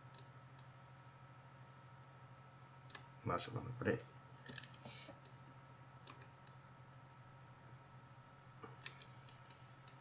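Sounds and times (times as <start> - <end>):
steady low hum: 0.0 - 10.0
mouse and keyboard clicks: 4.5 - 5.4, 8.7 - 10.0.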